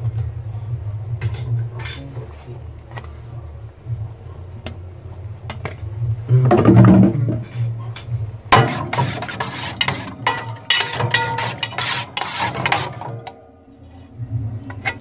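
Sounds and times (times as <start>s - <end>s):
cutlery clinking and scraping on pan: 1.2s - 2.4s, 7.4s - 13.4s.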